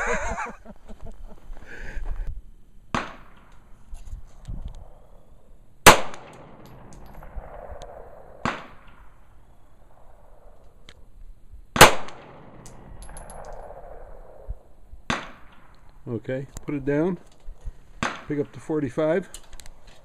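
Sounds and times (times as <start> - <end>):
pistol shots with echo: 2.9 - 3.6, 4.9 - 10.6, 11.8 - 15.8, 18.0 - 18.7.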